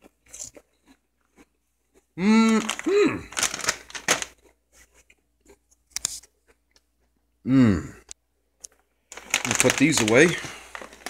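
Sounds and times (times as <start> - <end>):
man humming: 2.2 - 3.3, 7.4 - 8.1
chip bags crinkling: 2.3 - 4.6, 8.7 - 11.0.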